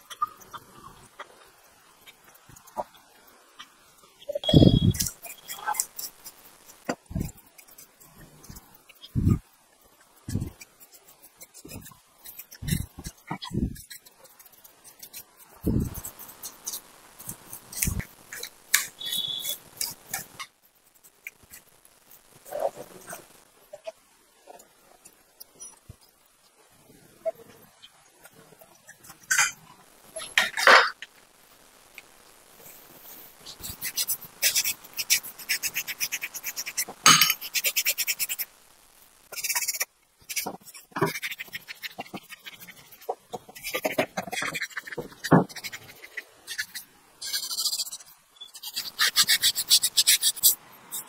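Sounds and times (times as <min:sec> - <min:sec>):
brief high squeak: 0:04.4 - 0:05.6
tools scraping metal: 0:37.1 - 0:37.6
brush scrubbing metal: 0:39.4 - 0:51.0.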